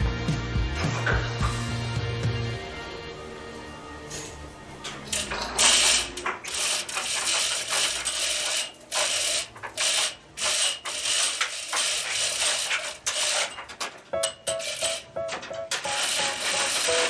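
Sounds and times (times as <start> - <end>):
metal ratchet clicking and rattling: 5.1 - 17.0.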